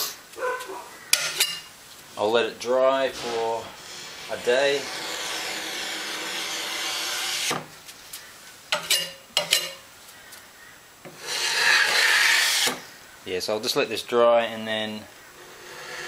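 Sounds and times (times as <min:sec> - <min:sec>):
putty knife scraping plywood: 0:11.1 - 0:12.8, 0:15.4 - 0:16.0.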